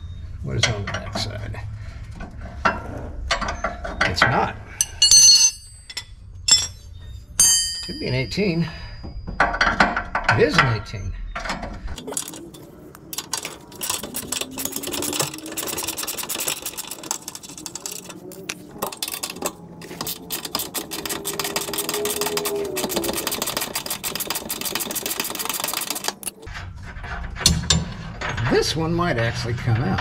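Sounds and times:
power ratchet clattering clicks: 0:12.0 - 0:26.4
electric motor whine: 0:17.5 - 0:24.1.

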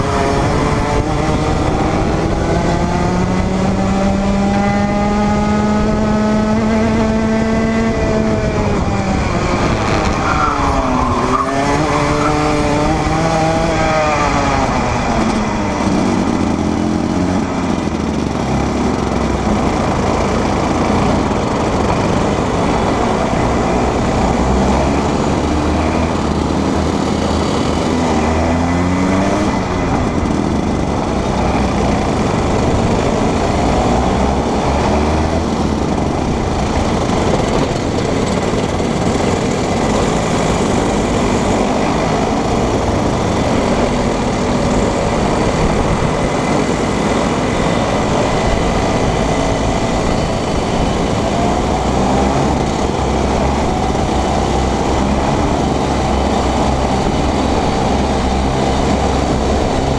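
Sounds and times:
kart engines racing: 0:00.0 - 0:59.9.

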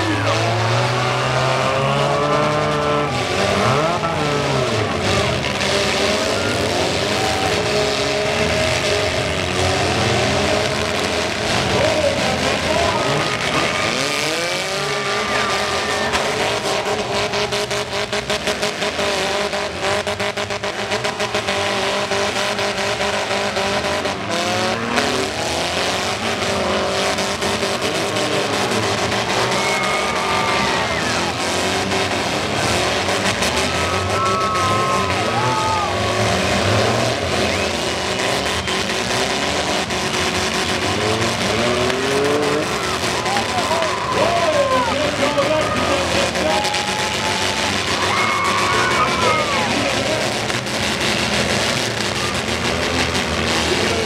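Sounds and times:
car engines revving: 0:00.0 - 0:54.0
cars ramming: 0:00.0 - 0:54.0.

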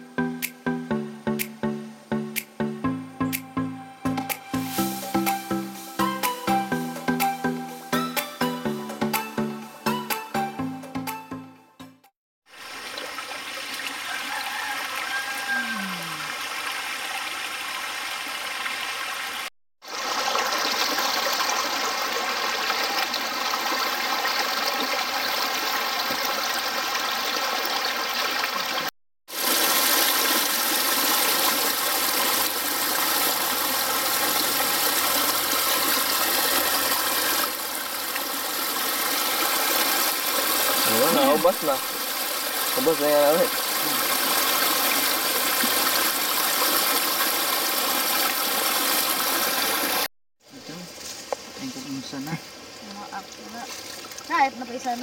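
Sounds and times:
stream water over rocks: 0:12.5 - 0:50.1, 0:50.9 - 0:55.0.

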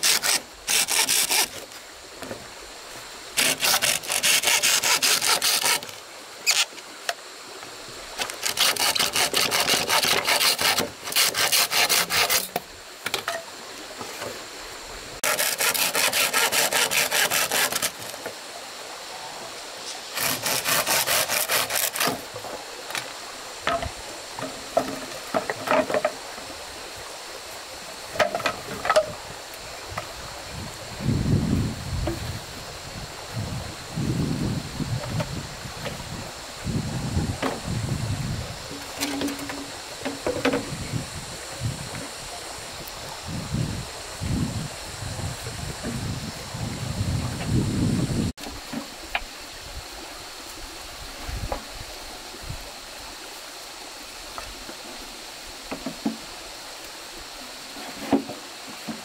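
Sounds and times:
hand saw cutting wood: 0:00.0 - 0:01.7, 0:03.4 - 0:06.7, 0:08.2 - 0:12.6, 0:15.2 - 0:18.2, 0:20.1 - 0:22.3.

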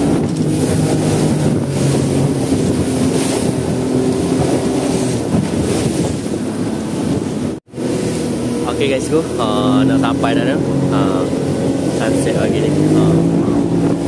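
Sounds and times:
outboard motor running: 0:00.0 - 0:14.0
water rushing past hull: 0:00.0 - 0:14.0
wind buffeting microphone: 0:00.0 - 0:14.0.

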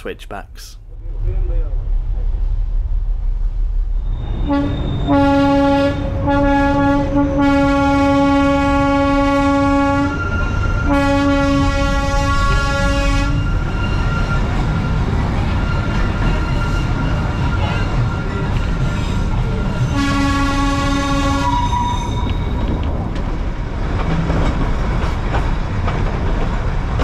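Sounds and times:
low rumble of moving train: 0:00.0 - 0:27.0
toy train horn tooting: 0:04.5 - 0:10.2, 0:10.9 - 0:13.5, 0:19.9 - 0:22.2.

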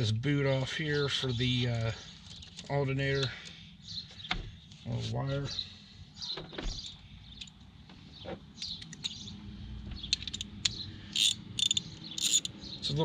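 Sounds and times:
hand tools clicking and scraping: 0:10.1 - 0:12.6
ratchet clicks: 0:10.1 - 0:12.6.

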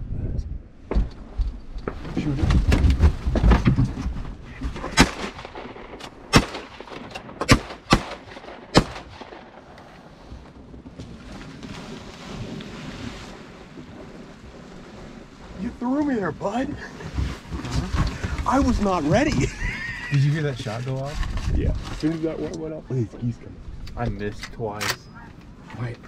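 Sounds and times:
low rumble: 0:00.0 - 0:20.5
shotguns firing: 0:04.8 - 0:09.7.

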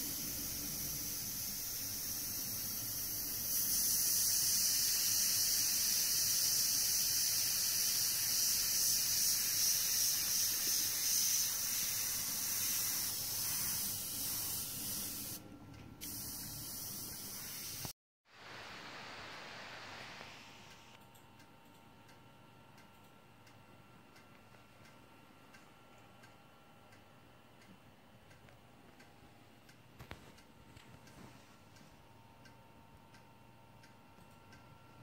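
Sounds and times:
airbrush hissing: 0:00.0 - 0:15.4, 0:16.0 - 0:18.0.

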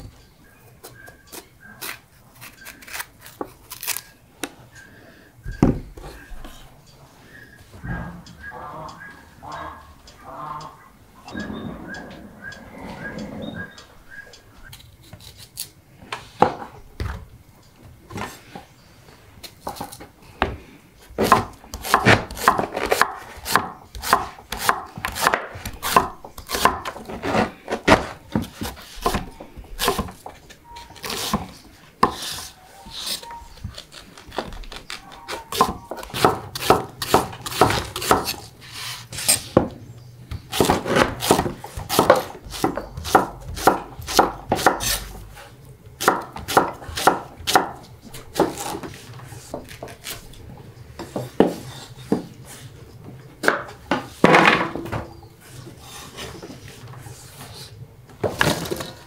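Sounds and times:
knife chopping on wooden board: 0:21.2 - 0:30.2, 0:35.5 - 0:38.4, 0:40.5 - 0:45.1, 0:46.0 - 0:47.8.

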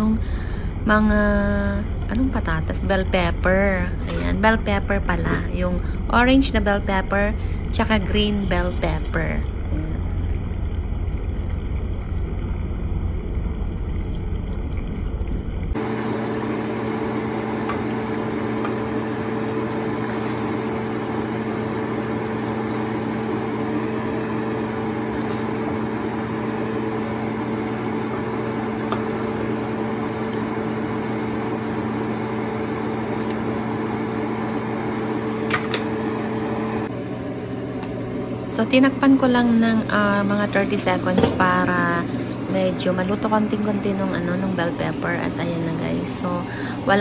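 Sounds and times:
fan hum and hiss: 0:00.0 - 0:14.6, 0:15.7 - 0:47.0
pan simmering on stove: 0:15.7 - 0:38.3.

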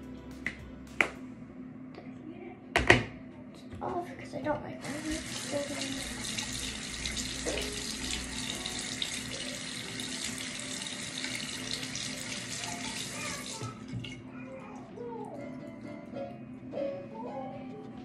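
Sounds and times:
tap water splashing into sink: 0:04.8 - 0:14.2.

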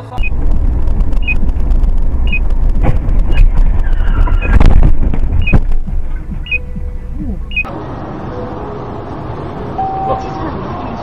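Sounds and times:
road and engine rumble: 0:00.0 - 0:11.0
vehicle crash impacts: 0:00.3 - 0:07.2.

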